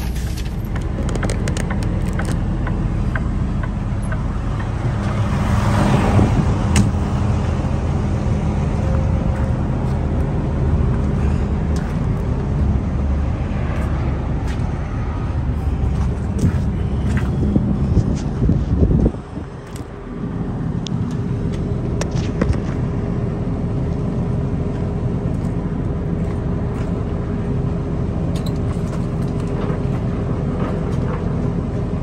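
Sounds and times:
diesel truck engine idling: 0.0 - 32.0.

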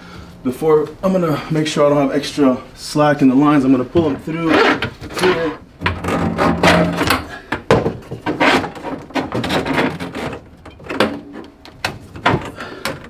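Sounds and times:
hoses scraping against cabinet: 4.0 - 7.4, 8.1 - 11.6.

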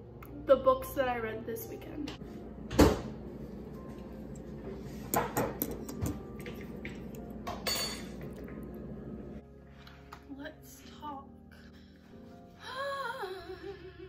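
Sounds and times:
metal fork clinking against bowl: 7.5 - 8.2.

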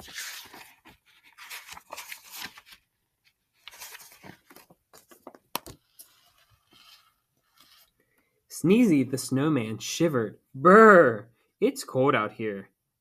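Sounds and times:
paper pages rustling: 0.0 - 7.9.

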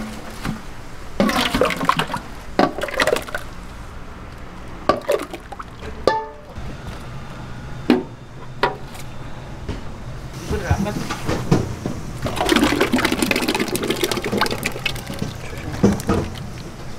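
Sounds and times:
thick sauce sloshing and pouring: 1.2 - 3.5, 12.2 - 16.9.

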